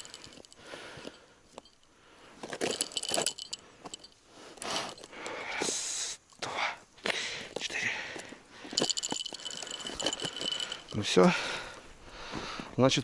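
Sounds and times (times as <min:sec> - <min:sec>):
light metallic jingle: 0:00.0 - 0:05.5, 0:08.6 - 0:11.8
crunching and scraping: 0:02.4 - 0:05.2.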